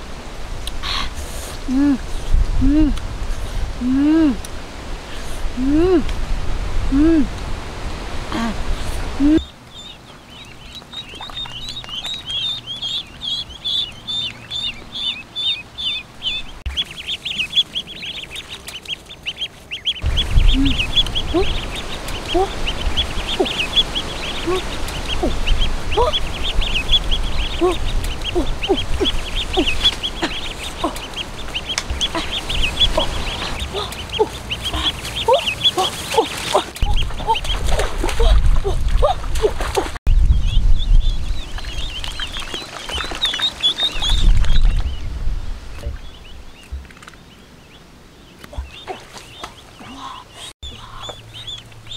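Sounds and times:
low rumbling noise: 0.0s - 36.2s
ducklings peeping: 9.2s - 45.1s, 45.7s - 51.9s.

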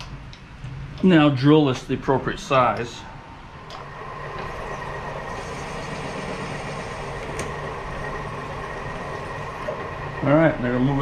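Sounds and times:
drill spindle running: 3.7s - 11.0s
drill bit boring metal: 3.9s - 10.9s.

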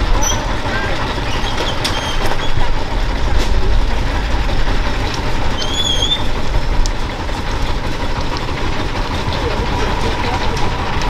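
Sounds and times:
engines rumbling: 0.0s - 11.0s.

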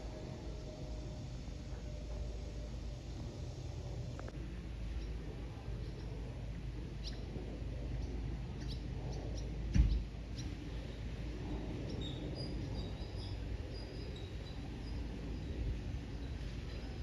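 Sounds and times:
steady low rumble: 0.0s - 17.0s
small birds chirping: 4.9s - 6.3s, 6.9s - 11.1s.

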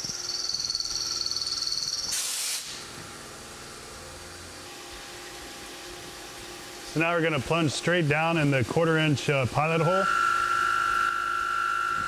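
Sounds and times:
milling machine whine: 0.0s - 2.2s, 3.4s - 12.0s
coolant hiss: 2.1s - 3.0s
low machine hum: 2.8s - 12.0s.

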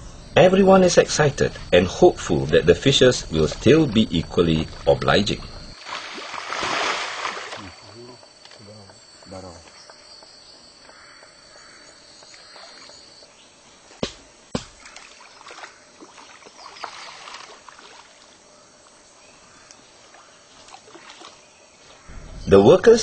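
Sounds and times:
insect drone: 0.0s - 23.0s
fish splashing at water surface: 5.8s - 7.8s
sharp knocks: 14.0s - 14.9s.

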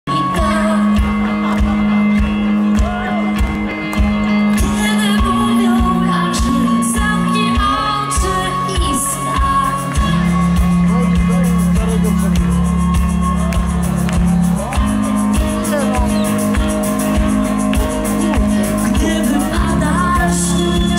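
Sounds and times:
woman singing into a microphone: 0.1s - 1.3s, 4.6s - 10.5s, 18.1s - 20.9s
live band music: 0.1s - 20.9s
steady drum beat: 2.2s - 20.9s.

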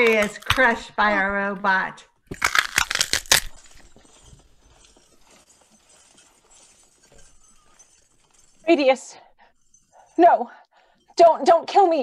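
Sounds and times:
celery snapping cracks: 2.3s - 3.9s
faint rustling and crackling: 3.6s - 11.3s.

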